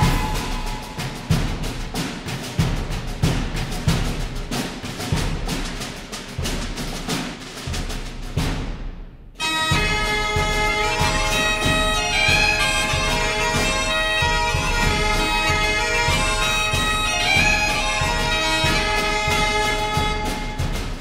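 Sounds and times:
bagpipes playing over drone: 0.0 - 1.0, 9.4 - 20.8
drum beating: 0.0 - 21.0.

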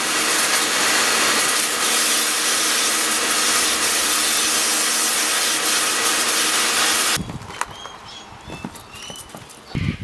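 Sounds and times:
pressure washer spraying: 0.0 - 7.2.

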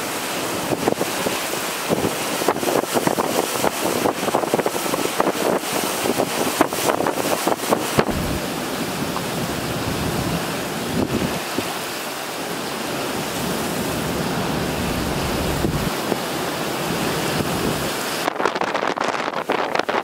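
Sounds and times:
driving rain and wind: 0.0 - 20.0
wind buffeting microphone: 1.9 - 11.7, 13.3 - 16.2.

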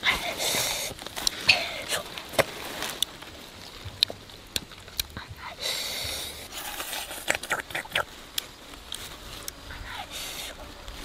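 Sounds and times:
burst of hiss: 9.8 - 10.6.

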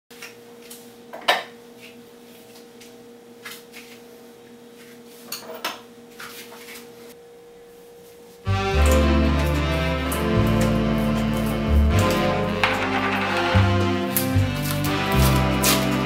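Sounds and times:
dishes and cutlery clinking: 10.4 - 14.3.

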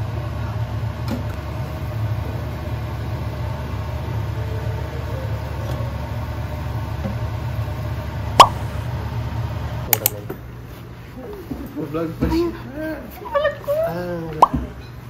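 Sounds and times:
induction cooktop hum: 0.0 - 15.0.

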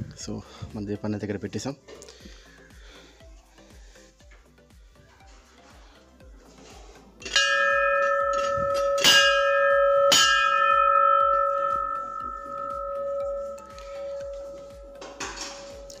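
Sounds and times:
metal temple bell ringing: 7.2 - 16.0.

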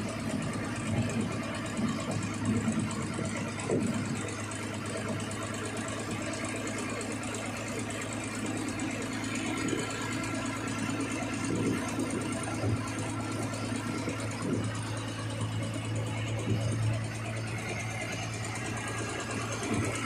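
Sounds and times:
engine running with clatter: 0.0 - 20.0
loud irregular noises: 0.0 - 20.0.

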